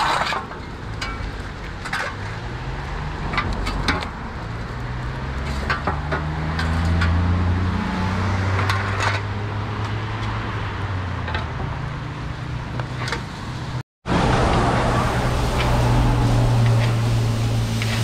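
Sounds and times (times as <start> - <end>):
clicks and scrapes of shovel: 0.0 - 2.5, 5.4 - 7.2, 8.6 - 9.3.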